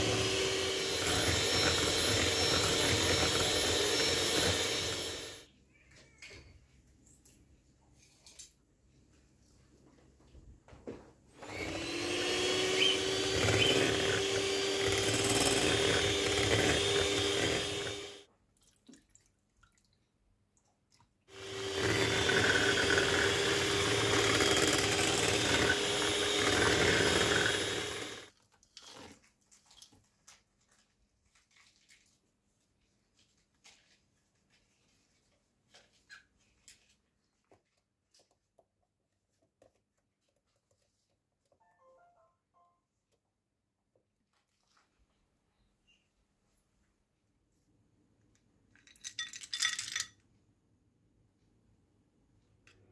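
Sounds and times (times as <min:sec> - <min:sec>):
electric hand mixer whisking: 0:00.0 - 0:05.4, 0:11.4 - 0:18.3, 0:21.3 - 0:28.3
faint clicks and taps: 0:36.6 - 0:41.7.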